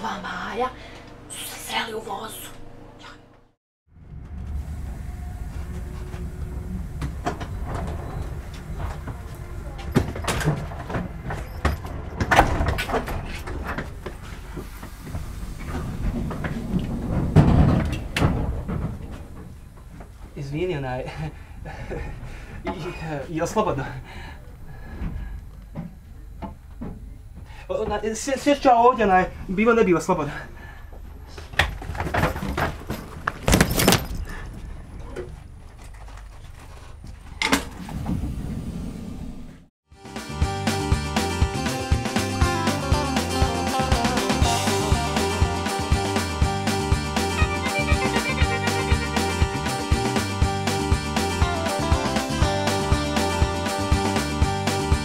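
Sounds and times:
train rumbling inside carriage: 0:04.0 - 0:23.0
rustling and metallic jingling: 0:32.0 - 0:34.8.

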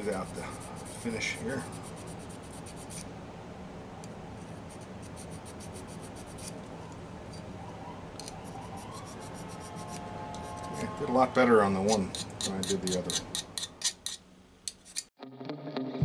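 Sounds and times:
hand file rasping on metal: 0:00.0 - 0:03.1, 0:09.0 - 0:10.9, 0:11.8 - 0:15.1.

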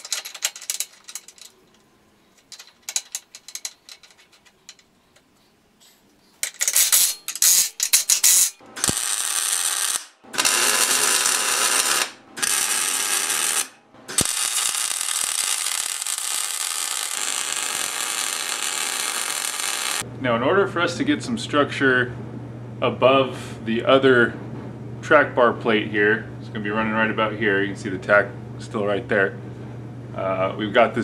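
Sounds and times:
metal parts clicking: 0:00.0 - 0:05.3, 0:06.4 - 0:09.0
welding crackling: 0:06.7 - 0:20.0.

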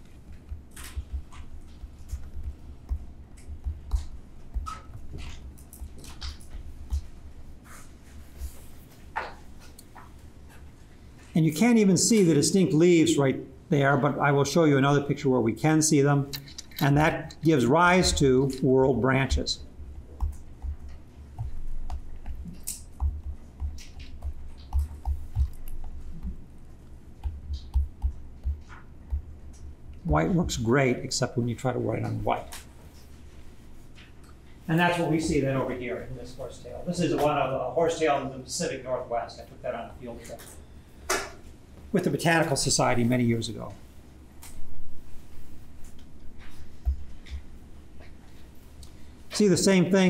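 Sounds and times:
stylus scratching on tablet screen: 0:00.0 - 0:08.8, 0:20.2 - 0:26.4.

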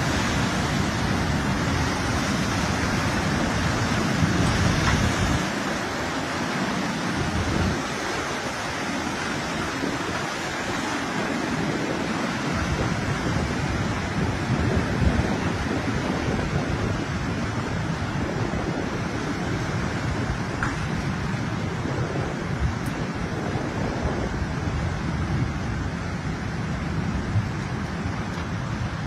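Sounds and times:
rush of turbulent water: 0:00.0 - 0:29.0.

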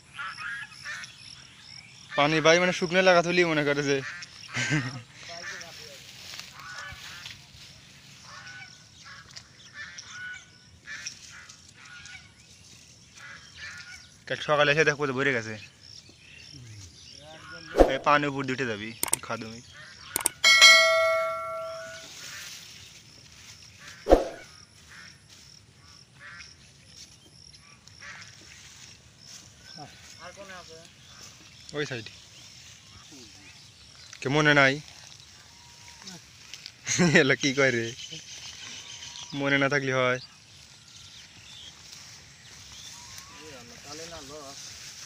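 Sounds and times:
birds calling: 0:00.0 - 0:07.4, 0:15.4 - 0:22.9, 0:23.8 - 0:25.1, 0:25.7 - 0:36.0, 0:36.8 - 0:44.5
hands rustling long grass: 0:05.4 - 0:08.4, 0:40.5 - 0:45.0.

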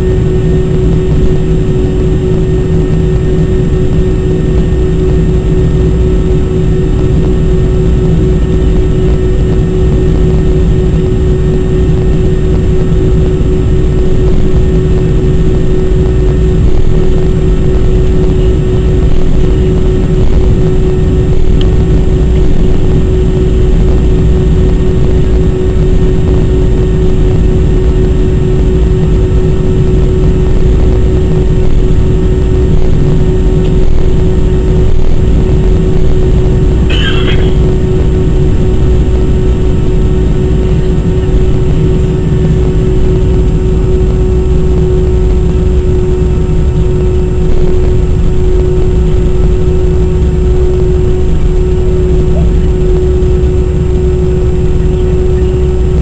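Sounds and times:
jet engines rumbling in cabin: 0:00.0 - 0:56.0
brief high squeak: 0:36.9 - 0:37.6.

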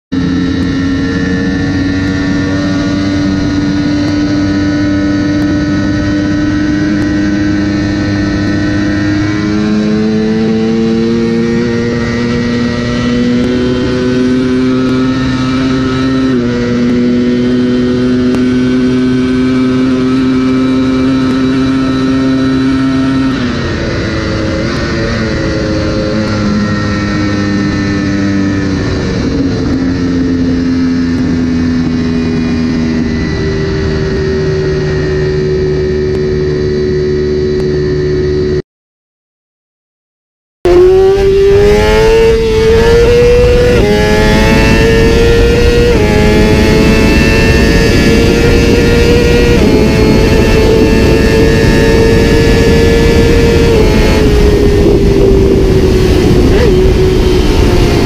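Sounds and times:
motorcycle engine running hard: 0:00.1 - 0:38.6, 0:40.6 - 0:58.0
wind rushing: 0:40.7 - 0:58.0.

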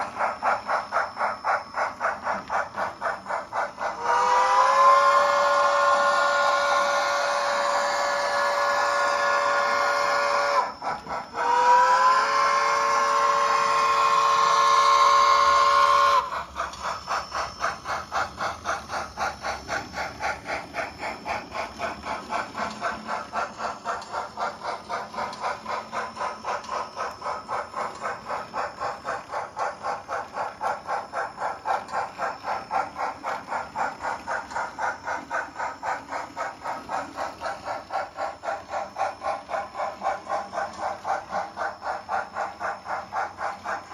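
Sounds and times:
steam locomotive chuffing: 0:00.0 - 0:43.9
steam whistle blowing: 0:04.0 - 0:16.3.

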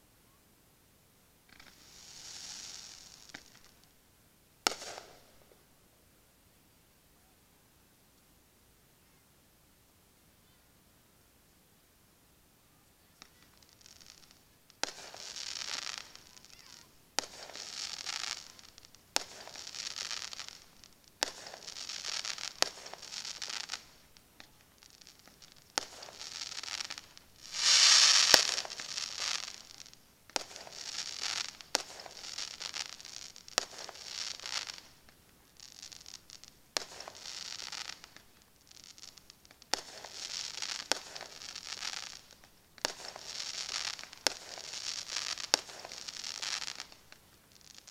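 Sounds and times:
crackling firework stars: 0:00.0 - 0:09.2, 0:11.4 - 0:47.9
firework shells bursting: 0:13.2 - 0:47.9.

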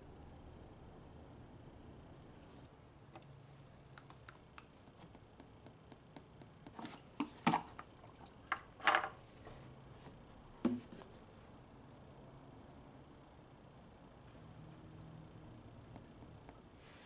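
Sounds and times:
plastic bottle knocks and scrapes: 0:10.6 - 0:11.0.

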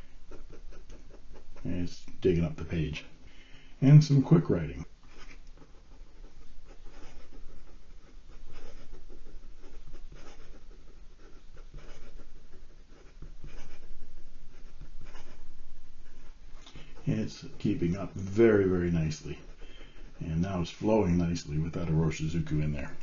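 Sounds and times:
fountain pen writing on paper: 0:05.1 - 0:16.9.

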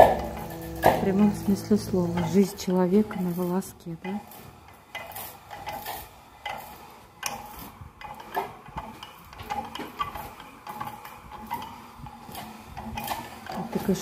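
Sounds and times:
well winch clicking and squeaking: 0:03.1 - 0:14.0.

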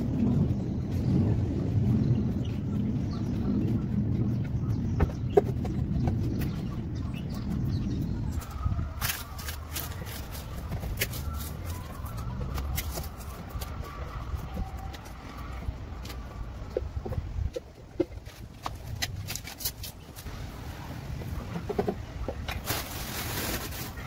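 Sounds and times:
low rumble: 0:00.0 - 0:18.9.

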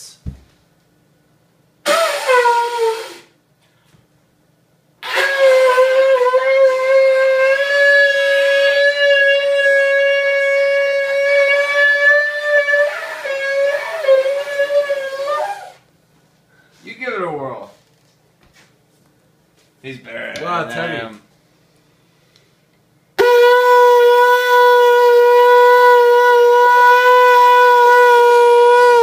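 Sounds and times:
horn blown like a trumpet: 0:01.8 - 0:03.3, 0:05.0 - 0:15.8, 0:23.2 - 0:29.0.

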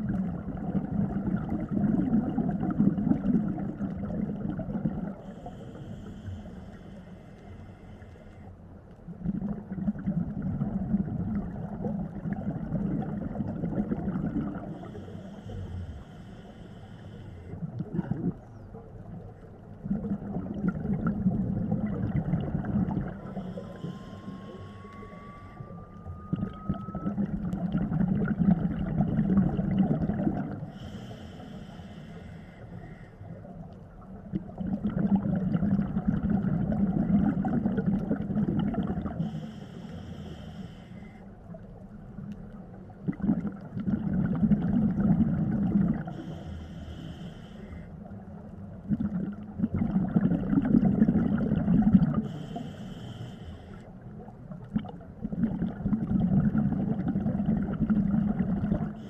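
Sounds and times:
rumbling exhaust bubbles: 0:00.0 - 0:05.5, 0:09.1 - 0:15.0, 0:17.6 - 0:18.6, 0:19.7 - 0:23.6, 0:26.0 - 0:30.7, 0:34.2 - 0:39.3, 0:42.9 - 0:46.2, 0:48.7 - 0:52.3, 0:54.2 - 0:59.0
regulator hissing inhale: 0:05.2 - 0:08.6, 0:14.6 - 0:17.7, 0:23.1 - 0:25.8, 0:30.6 - 0:33.5, 0:39.2 - 0:41.4, 0:46.1 - 0:48.1, 0:52.2 - 0:54.0.

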